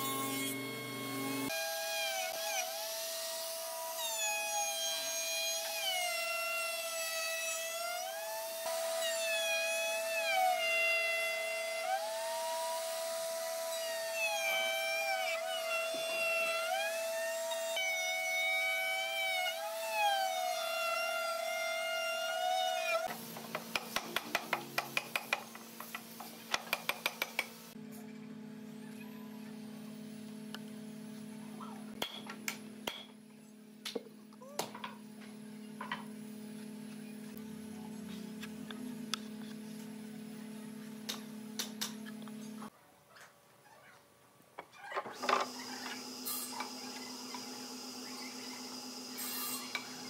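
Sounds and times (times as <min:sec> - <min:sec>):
power tool whine: 0:00.0 - 0:23.2, 0:45.2 - 0:50.0.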